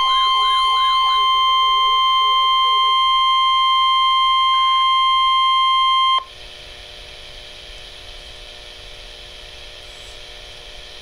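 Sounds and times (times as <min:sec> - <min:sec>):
faint radio hiss: 0:00.0 - 0:04.6
radio warning alarm tone: 0:00.0 - 0:06.3.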